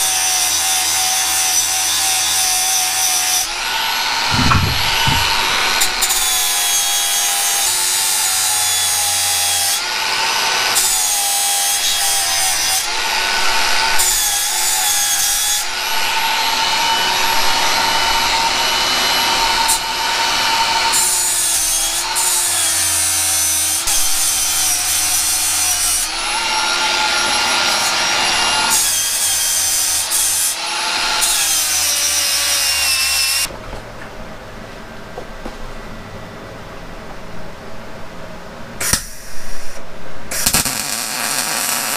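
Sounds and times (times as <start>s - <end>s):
angle grinder grinding metal: 0.6s - 9.8s.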